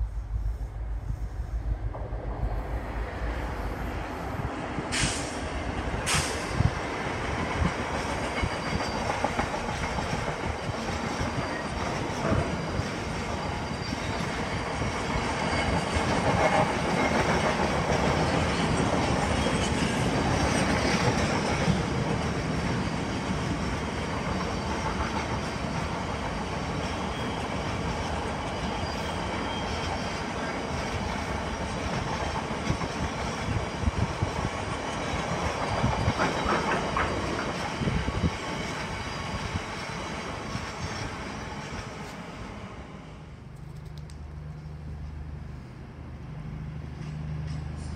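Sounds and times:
train wheels clattering: 0:06.0 - 0:42.1.

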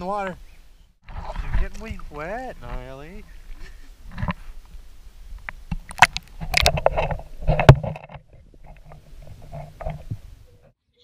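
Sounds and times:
water splashing and sloshing: 0:01.0 - 0:10.6.

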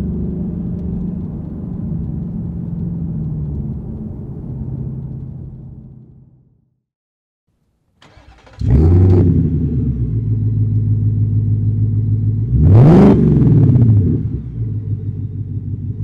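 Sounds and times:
car engine idling: 0:08.0 - 0:12.6, 0:13.8 - 0:16.0
engine revving: 0:08.0 - 0:15.2.

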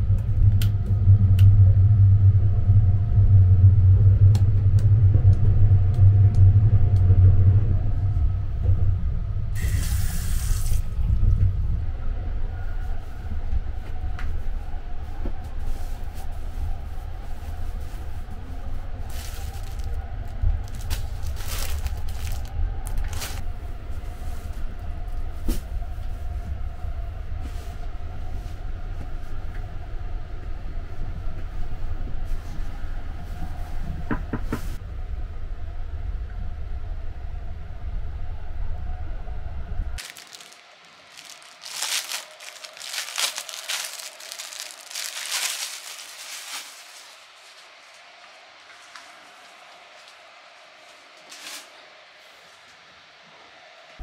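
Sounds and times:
train low rumble: 0:00.0 - 0:51.6
bedding rustling: 0:19.0 - 0:23.4, 0:40.0 - 0:48.0
plastic wrapping crinkling: 0:19.1 - 0:23.4, 0:40.0 - 0:48.0, 0:51.2 - 0:51.7.

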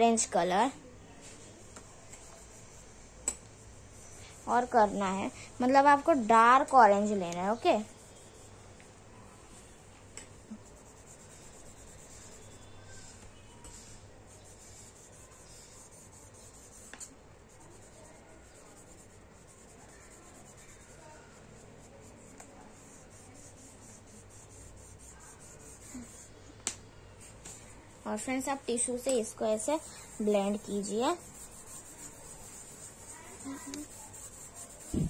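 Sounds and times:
pastel rubbing on paper: 0:07.2 - 0:08.9, 0:10.4 - 0:26.3, 0:27.2 - 0:35.0.

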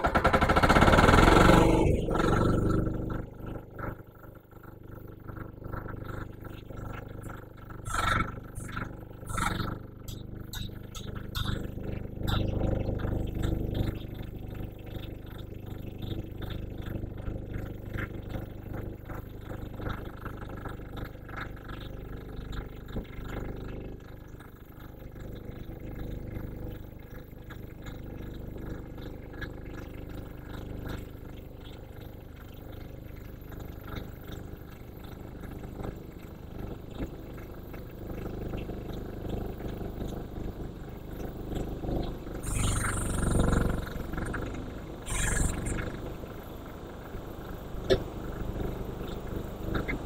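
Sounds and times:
loud burst of noise: 0:42.4 - 0:46.3.

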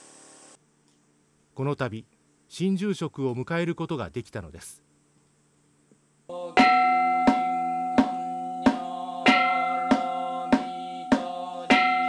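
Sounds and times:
bowl bell ringing: 0:06.6 - 0:08.7, 0:09.3 - 0:12.0
wooden fish drum beats: 0:06.6 - 0:12.0.

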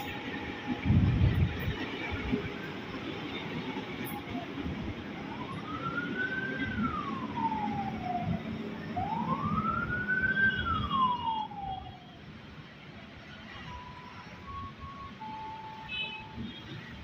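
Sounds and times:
electric train rumbling past: 0:00.0 - 0:17.0
siren wailing: 0:04.0 - 0:12.2.

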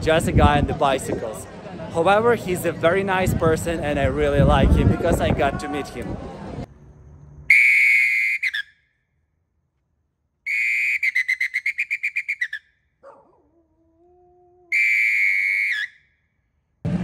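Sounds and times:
whistle blasts with warbling trill: 0:07.5 - 0:09.0, 0:10.4 - 0:12.8, 0:14.7 - 0:16.2.

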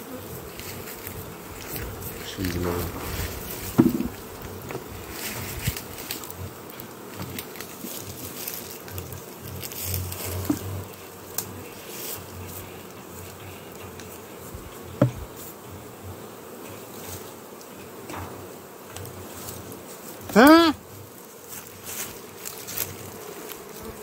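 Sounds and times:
bees buzzing: 0:00.0 - 0:24.0
sharp knocks: 0:03.7 - 0:04.8.

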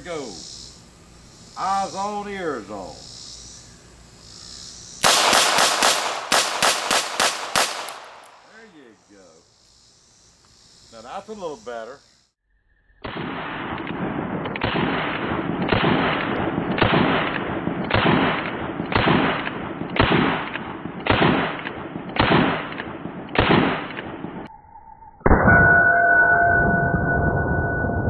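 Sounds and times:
revolver gunshots: 0:05.0 - 0:08.6, 0:13.0 - 0:24.5.

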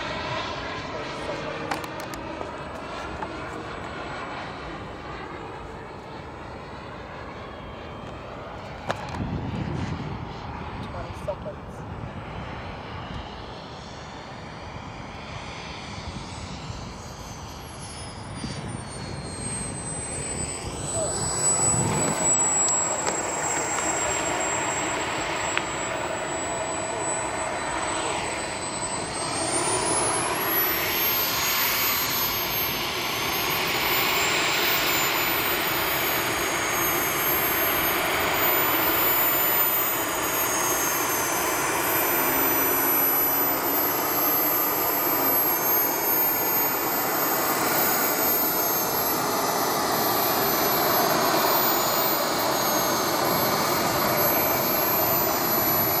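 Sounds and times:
machine noise with high whine: 0:00.0 - 0:56.0.

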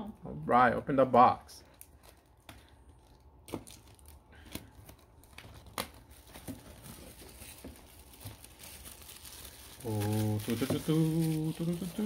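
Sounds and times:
plastic shrink-wrap crinkling: 0:01.6 - 0:12.0.

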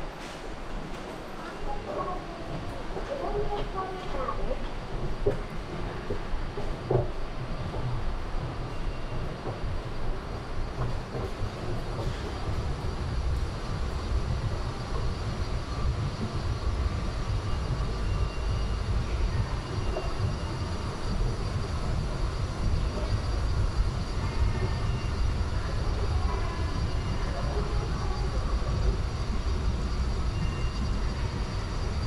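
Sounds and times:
subway station low rumble: 0:00.0 - 0:32.0
faint high-pitched tones: 0:14.2 - 0:32.0.

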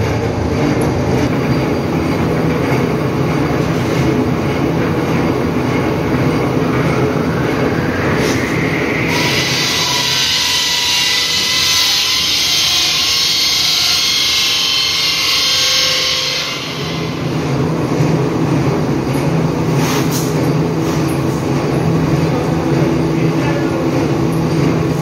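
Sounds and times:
steady low hum: 0:00.0 - 0:11.3
extrusion machinery running: 0:00.0 - 0:25.0.

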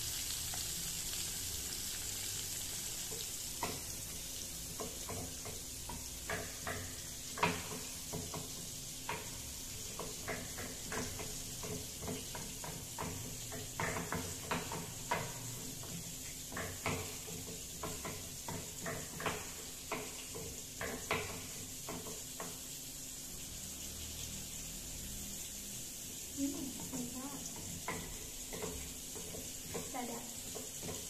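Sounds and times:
steady hiss: 0:00.0 - 0:31.0.

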